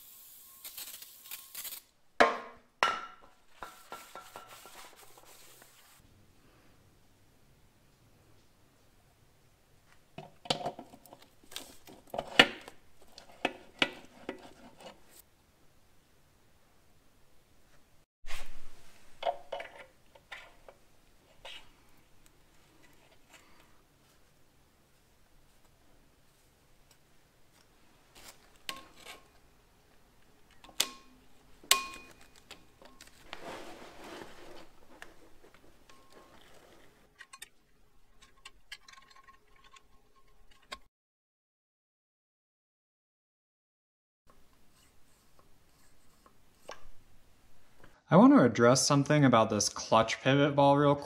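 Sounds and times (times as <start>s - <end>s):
metal scraping rustle: 3.5s - 6.0s, 31.9s - 40.9s
metal clinks and knocks: 35.8s - 40.9s.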